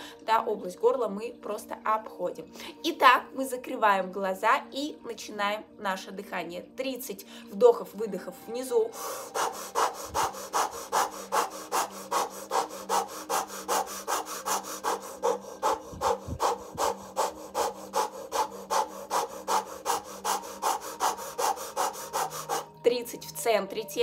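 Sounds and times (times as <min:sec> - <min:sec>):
woman breathing fast through lips: 0:08.9 - 0:22.8.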